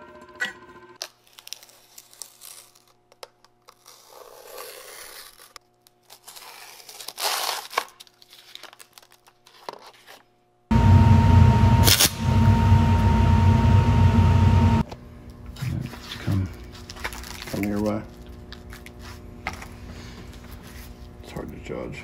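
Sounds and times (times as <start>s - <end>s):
plastic film crinkling and tearing: 1.0s - 10.2s, 16.5s - 19.3s.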